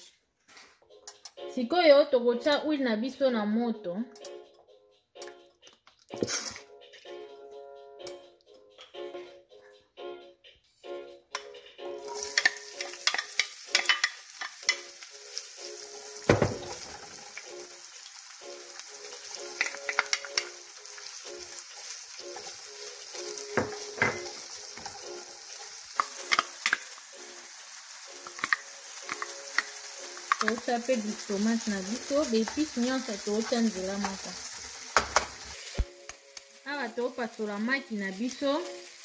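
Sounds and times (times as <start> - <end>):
vegetables sizzling in oil: 11.9 - 39.0
spoon knocking against pan: 23.5 - 25.0, 35.0 - 35.4.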